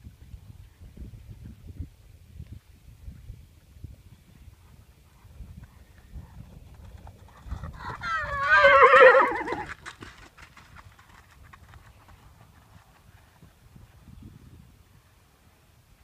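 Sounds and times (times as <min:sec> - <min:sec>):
horse whinnying: 0:07.8 - 0:09.8.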